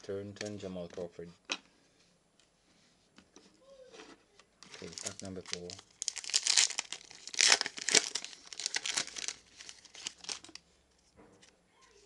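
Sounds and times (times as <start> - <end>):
foil wrapper crinkling and tearing: 4.7 - 10.6.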